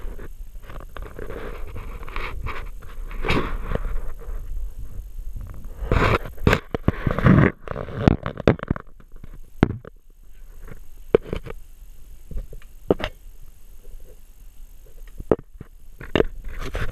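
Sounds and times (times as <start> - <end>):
sharp clicks and knocks: 5.9 - 10.0.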